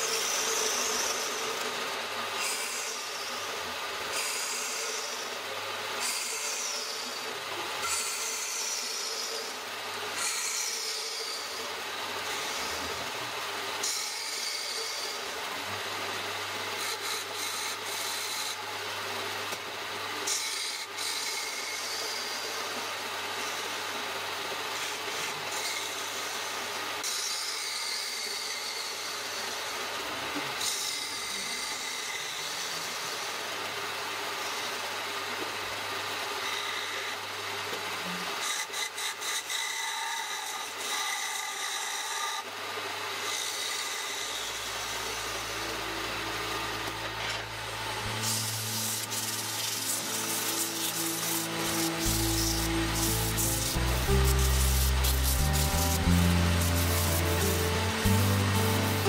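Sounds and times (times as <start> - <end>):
lathe motor hum: 43.2 - 59.0
sharp higher tool stroke: 48.0 - 59.0
tool rasping against wood: 48.1 - 59.0.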